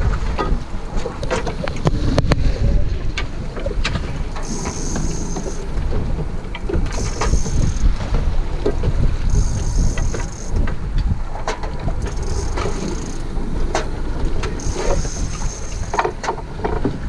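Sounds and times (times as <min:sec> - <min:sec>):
wind buffeting microphone: 0:00.0 - 0:17.0
outboard motor running: 0:03.8 - 0:17.0
high buzz: 0:04.4 - 0:08.1, 0:09.2 - 0:10.6, 0:14.5 - 0:16.1.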